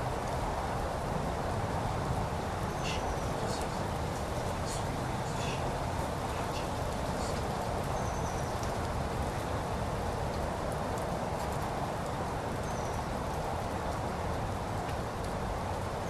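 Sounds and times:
water drops falling on foliage: 0.0 - 16.0.

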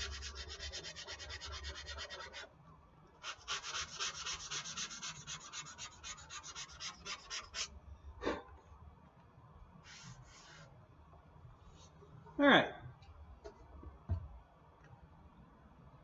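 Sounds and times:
sandpaper rubbing over filler: 0.0 - 2.5, 3.2 - 7.7, 9.8 - 10.7.

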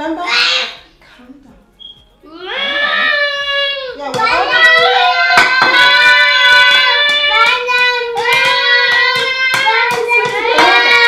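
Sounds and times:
children singing and squealing: 2.3 - 11.0.

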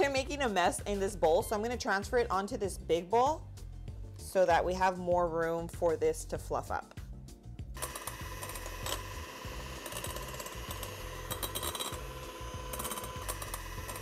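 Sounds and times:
electric hand mixer whine: 7.8 - 14.0.

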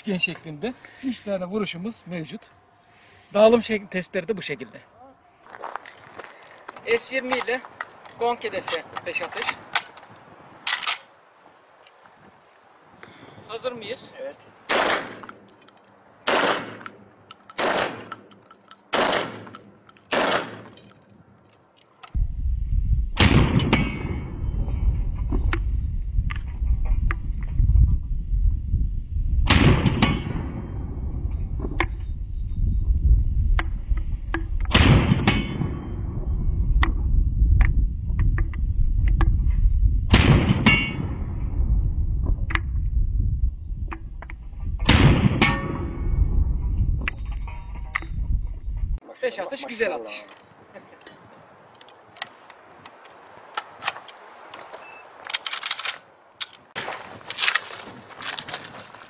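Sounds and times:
shotgun shots echoing: 14.7 - 15.4, 16.2 - 17.0, 17.6 - 18.3, 18.9 - 20.7.

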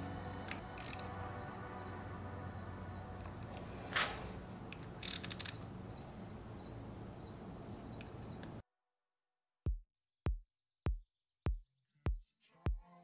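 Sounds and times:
insects chirping: 0.0 - 8.6.

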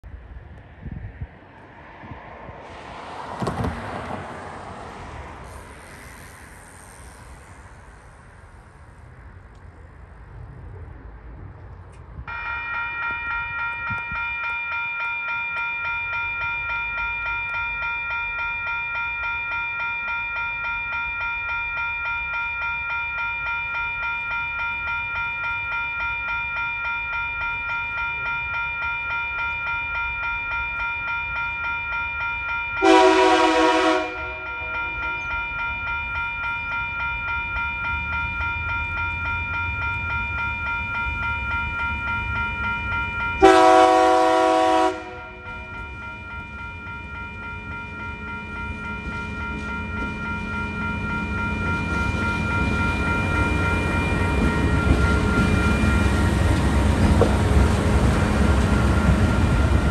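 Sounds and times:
vehicle passing: 0.3 - 12.2
level-crossing warning bell: 12.2 - 59.9.

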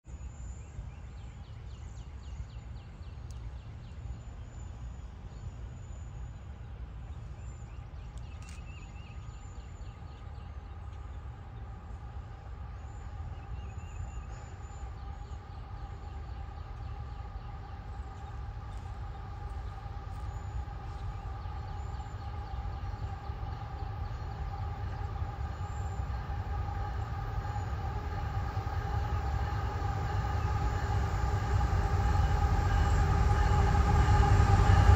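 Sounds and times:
distant freight train rumble: 1.3 - 34.9
locomotive engine tones: 10.0 - 34.9.

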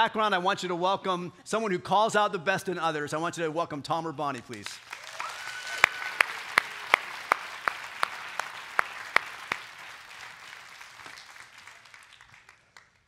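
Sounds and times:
audience applauding: 4.4 - 13.0
loud close hand claps: 4.5 - 13.0.

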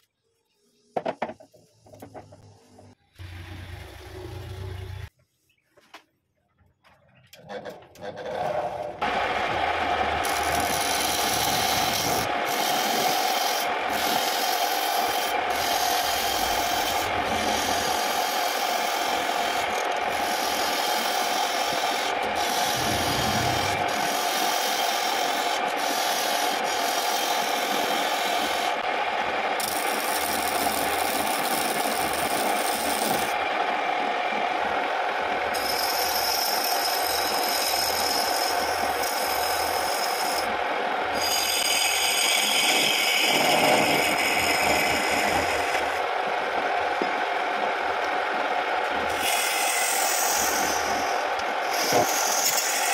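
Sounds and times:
lathe humming: 9.0 - 28.8
turning tool scraping wood: 10.2 - 28.7, 49.2 - 52.9.

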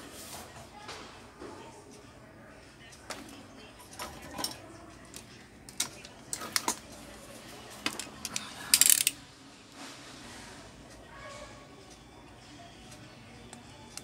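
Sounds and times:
metal tools clicking and tapping: 3.9 - 6.9, 7.8 - 9.2.

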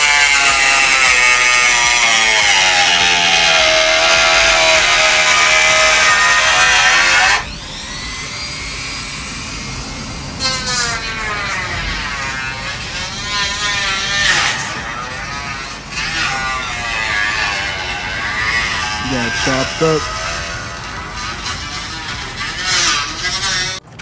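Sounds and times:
power tool cutting metal: 0.0 - 24.0.

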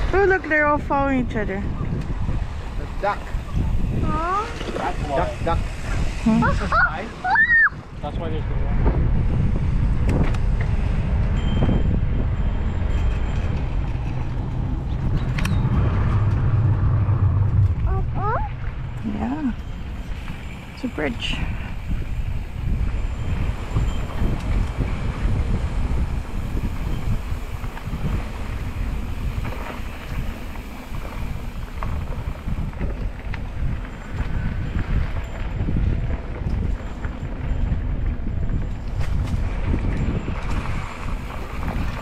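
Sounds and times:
bike tyres rolling on pavement: 0.0 - 42.0
wind on microphone: 0.0 - 42.0.

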